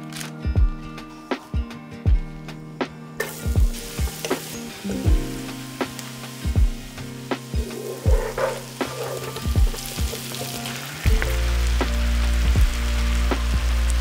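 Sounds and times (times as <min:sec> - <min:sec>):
background music with a beat: 0:00.0 - 0:14.0
food sizzling in a frying pan: 0:03.2 - 0:14.0
deep bass: 0:09.4 - 0:14.0.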